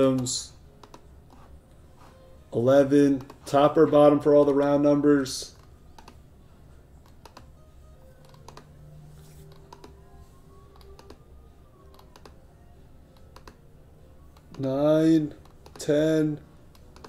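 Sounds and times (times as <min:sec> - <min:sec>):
faint music: 0:00.0 - 0:17.0
computer keyboard and mouse clicking: 0:00.1 - 0:01.4, 0:03.2 - 0:03.4, 0:05.5 - 0:06.2, 0:07.0 - 0:07.5, 0:08.2 - 0:08.7, 0:09.5 - 0:10.0, 0:10.7 - 0:11.2, 0:11.9 - 0:12.4, 0:13.2 - 0:13.6, 0:16.7 - 0:17.0.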